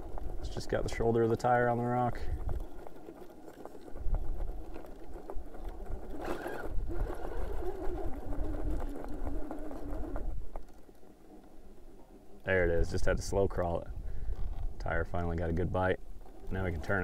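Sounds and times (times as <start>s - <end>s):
tire scrabbling on rock: 0.0s - 17.0s
electric motor whining: 2.3s - 11.9s.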